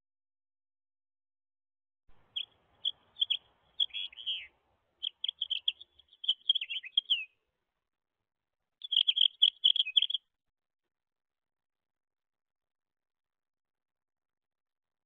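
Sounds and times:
songbirds chirping: 2.1 - 7.6, 8.8 - 10.3.

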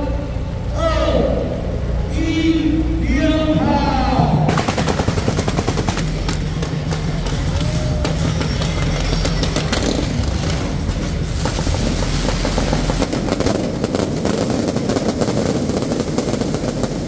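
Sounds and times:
fireworks crackling and banging: 4.5 - 17.0.

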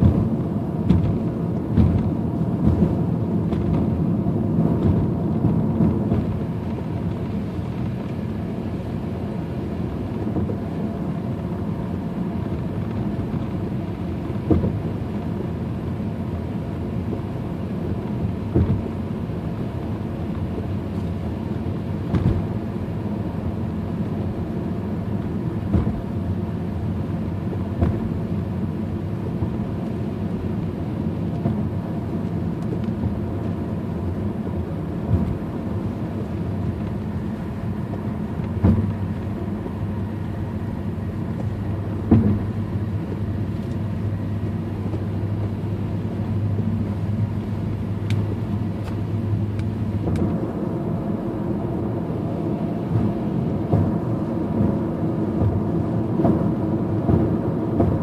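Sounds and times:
windshield wipers knocking: 0.0 - 4.0, 4.7 - 6.4, 14.4 - 14.8, 18.5 - 19.0, 22.1 - 22.6, 25.6 - 26.2, 27.5 - 28.2, 35.0 - 35.5, 37.8 - 39.8, 41.4 - 42.8, 52.8 - 58.0
car driving on wet road: 0.0 - 58.0.

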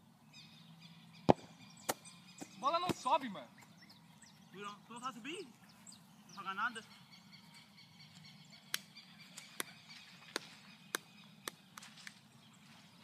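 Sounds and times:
faint outdoor background: 0.0 - 13.0.

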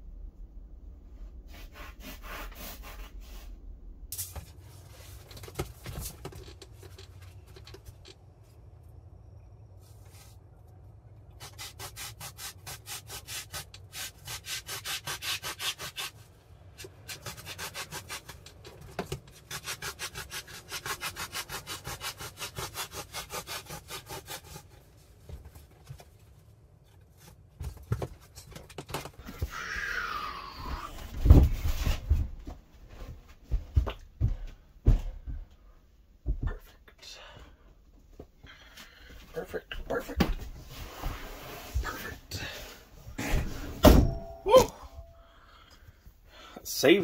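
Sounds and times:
foam being sawn by hand: 1.4 - 3.6, 11.4 - 25.0.

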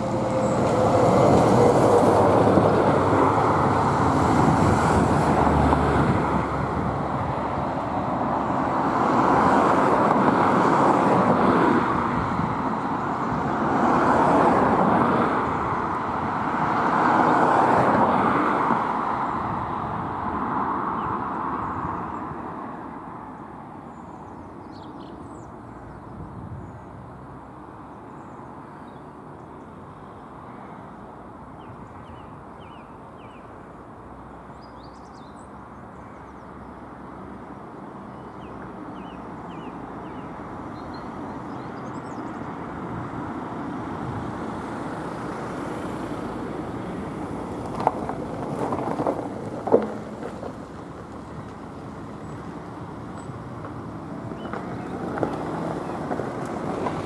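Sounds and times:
steady outdoor rumble: 0.0 - 13.9, 35.2 - 57.0.

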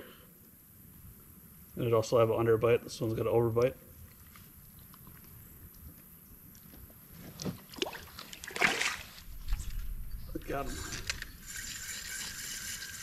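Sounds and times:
water splashing: 7.7 - 9.9.

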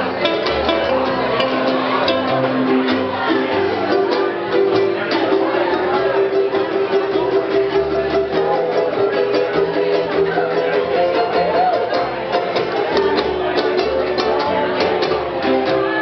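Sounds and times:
plucked upright bass: 0.0 - 16.0
ukulele ensemble strumming: 0.0 - 16.0.

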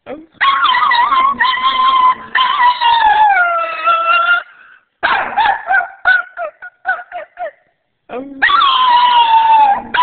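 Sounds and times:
dog howling: 0.4 - 4.6, 8.4 - 10.0
dog yipping: 0.4 - 7.6, 8.4 - 10.0.

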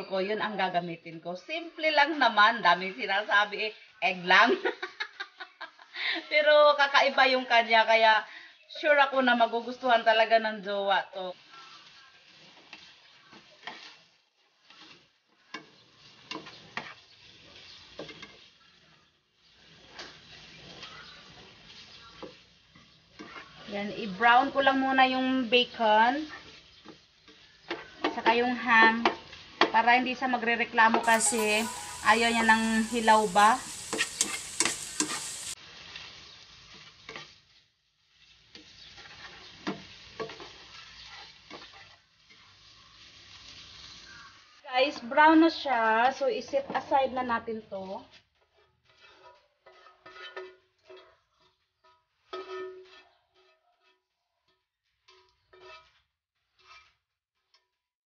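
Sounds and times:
meat sizzling in oil: 8.8 - 47.4, 48.0 - 53.5
spatula scraping and tapping pan: 11.4 - 30.1, 30.9 - 44.3, 48.0 - 57.8.

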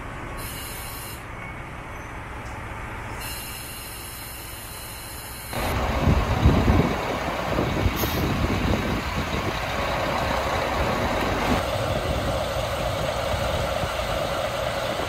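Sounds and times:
diesel locomotive idling: 0.0 - 15.0
air hiss: 0.4 - 1.3, 3.2 - 6.0, 7.9 - 8.4.

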